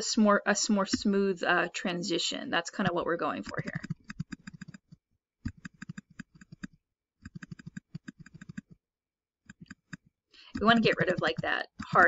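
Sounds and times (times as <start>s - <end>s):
rapid computer mouse clicks: 3.4s - 8.8s, 9.4s - 12.0s.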